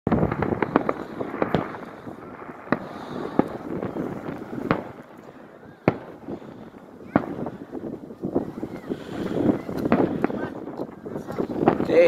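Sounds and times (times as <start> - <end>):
fireworks bangs and crackles: 0.1 - 12.0
fireworks booms: 0.1 - 12.0.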